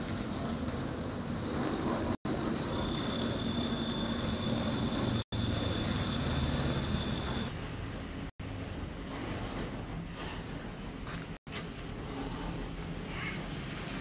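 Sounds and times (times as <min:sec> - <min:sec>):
street noise rumble: 0:00.0 - 0:14.0
thin high whine: 0:02.3 - 0:07.5.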